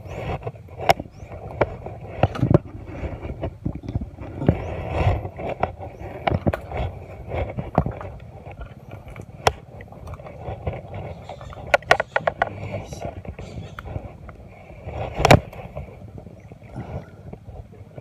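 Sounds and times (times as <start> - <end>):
camera knocking and rustling: 0.0 - 16.4
low uneven rumble: 0.0 - 18.0.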